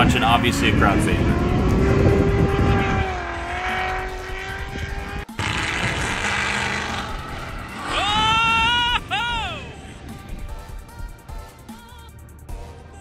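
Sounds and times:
car engines at high revs: 0:00.0 - 0:12.4
tyre squeal: 0:06.9 - 0:09.7.

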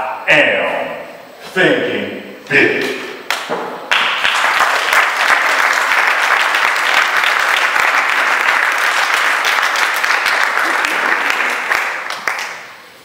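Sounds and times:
audience applauding: 0:03.9 - 0:12.8.

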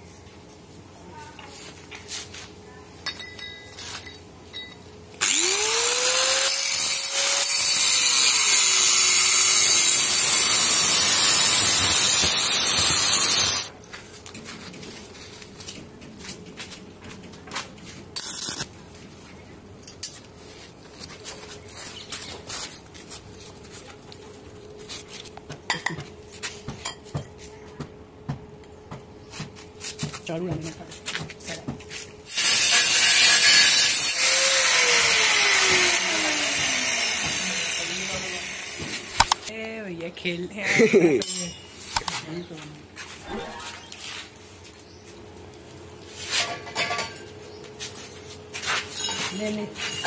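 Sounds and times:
angle grinder cutting steel: 0:05.2 - 0:13.7, 0:18.2 - 0:18.7, 0:32.3 - 0:39.5.

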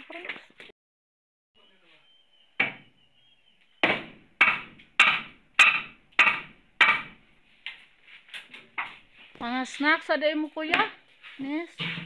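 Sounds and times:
hammer striking wooden framing: 0:02.6 - 0:02.9, 0:03.8 - 0:07.3.

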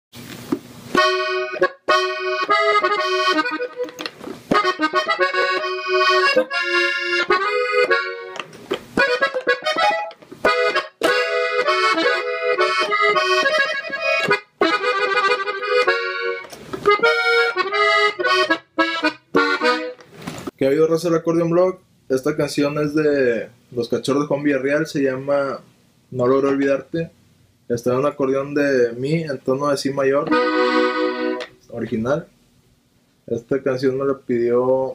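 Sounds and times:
button accordion playing: 0:00.9 - 0:20.1, 0:30.3 - 0:31.5.

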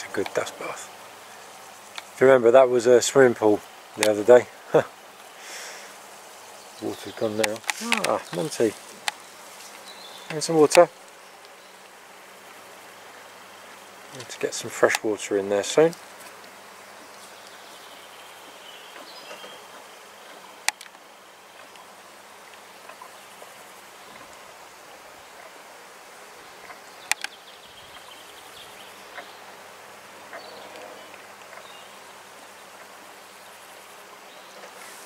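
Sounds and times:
insects buzzing: 0:00.0 - 0:35.0
sharp clicks: 0:07.4 - 0:09.2, 0:14.2 - 0:15.1, 0:27.0 - 0:27.3.

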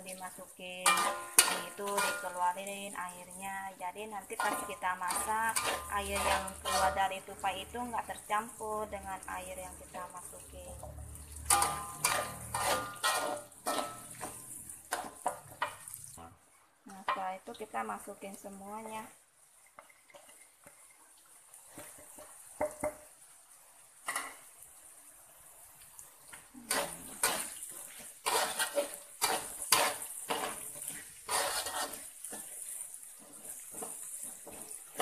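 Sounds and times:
food sizzling in oil: 0:00.0 - 0:35.0
metal spatula scraping a wok: 0:00.1 - 0:02.5, 0:04.3 - 0:08.0, 0:10.9 - 0:15.8, 0:26.6 - 0:35.0.

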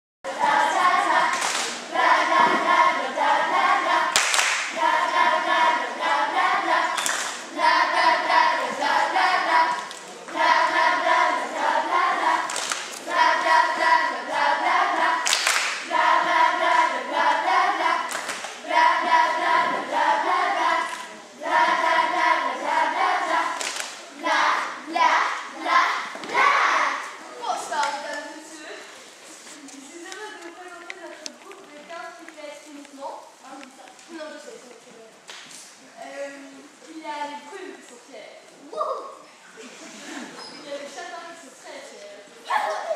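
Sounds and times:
girls singing together: 0:00.3 - 0:29.0
hand claps: 0:04.1 - 0:04.8, 0:06.9 - 0:07.4, 0:12.5 - 0:13.0, 0:15.2 - 0:15.9, 0:18.1 - 0:18.6, 0:23.6 - 0:24.0.

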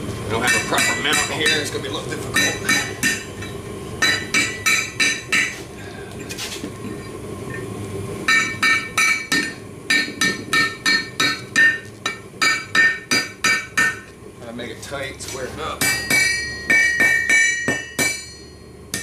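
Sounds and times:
hammer striking hot metal on anvil: 0:00.3 - 0:05.6, 0:08.3 - 0:14.1, 0:15.3 - 0:19.0.

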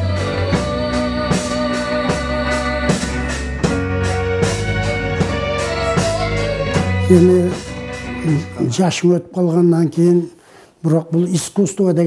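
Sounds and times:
boy singing into a microphone: 0:00.0 - 0:03.4, 0:04.9 - 0:08.7
steady drum beat: 0:00.0 - 0:09.0.

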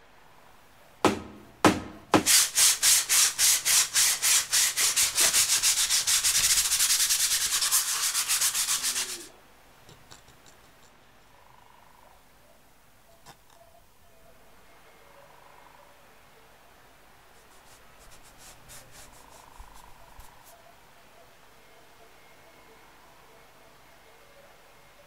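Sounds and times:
needle file rasping wood: 0:02.2 - 0:09.3, 0:17.4 - 0:20.4.

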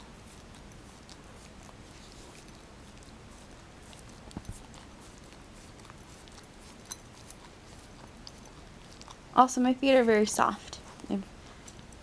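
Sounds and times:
dog licking skin: 0:00.0 - 0:12.0.

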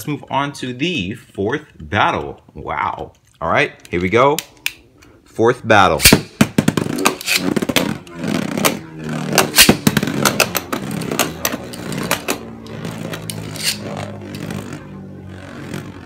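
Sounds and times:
spinning tops whirring: 0:06.0 - 0:14.8.

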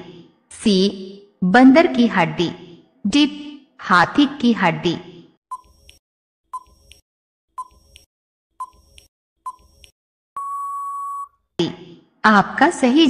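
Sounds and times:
long steady beep: 0:10.4 - 0:11.4.

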